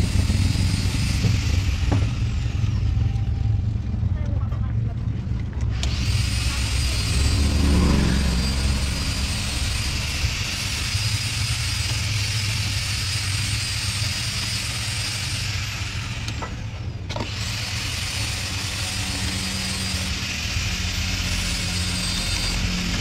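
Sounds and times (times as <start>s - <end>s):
low engine rumble: 2.4s - 12.6s.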